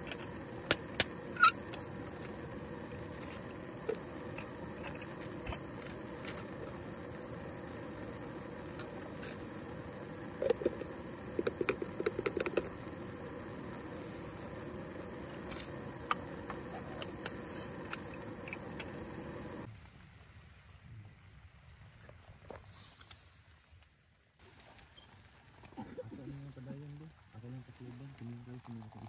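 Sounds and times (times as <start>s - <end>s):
steady hiss: 0.0s - 29.0s
coffee gear rattling clicks: 11.4s - 12.8s.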